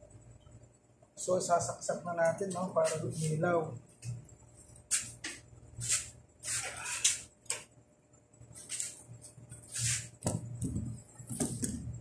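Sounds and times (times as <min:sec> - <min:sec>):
rustling and scraping handling noises: 0:08.5 - 0:11.9.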